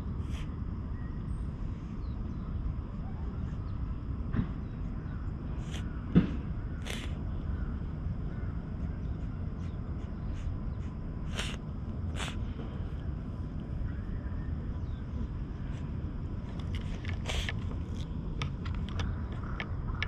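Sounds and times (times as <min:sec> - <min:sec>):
steady low rumble: 0:00.0 - 0:20.0
grooming brush rasping on cat fur: 0:05.6 - 0:05.9, 0:06.8 - 0:07.1, 0:08.8 - 0:12.4, 0:16.7 - 0:18.0.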